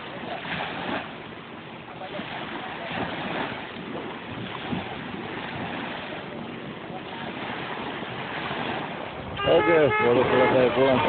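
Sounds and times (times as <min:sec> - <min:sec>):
small waves washing: 0:00.0 - 0:11.0
wind buffeting microphone: 0:00.0 - 0:11.0
faint voices: 0:05.9 - 0:08.0, 0:09.0 - 0:11.0.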